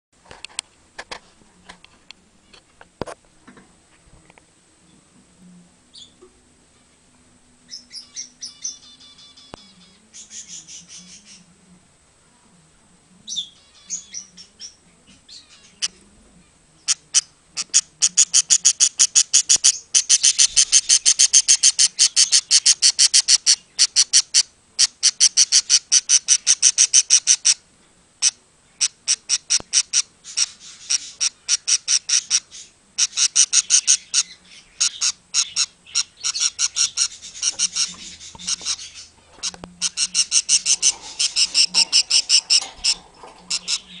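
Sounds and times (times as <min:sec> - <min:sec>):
budgie chirping: 0:16.8 - 0:27.6, 0:28.2 - 0:44.0.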